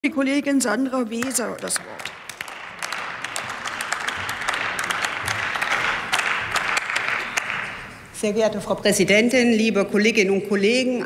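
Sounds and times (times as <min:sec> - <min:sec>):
crowd applause: 0:01.5 - 0:08.0.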